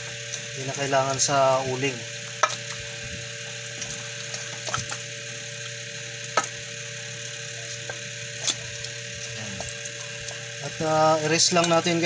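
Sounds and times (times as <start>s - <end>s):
steady background hum: 0.0s - 12.0s.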